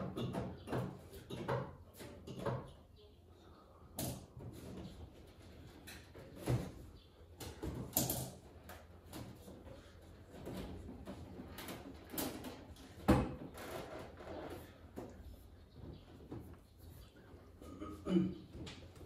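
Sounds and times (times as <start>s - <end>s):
objects knocking and clattering: 0.0s - 2.9s, 4.0s - 14.2s.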